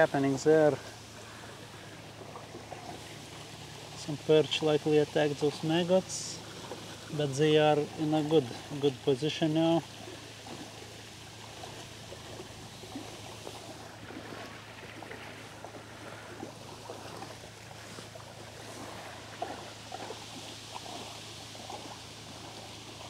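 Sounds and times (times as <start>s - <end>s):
watery hiss with crackles: 0.0s - 9.8s.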